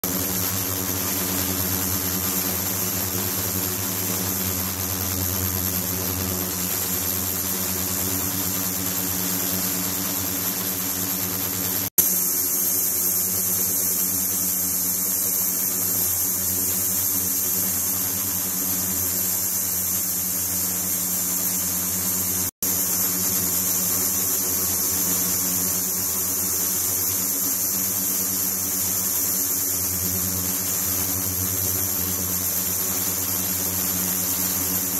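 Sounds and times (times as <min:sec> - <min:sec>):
cleaning tank pump humming: 0:00.0 - 0:34.9
high hiss: 0:12.0 - 0:34.9.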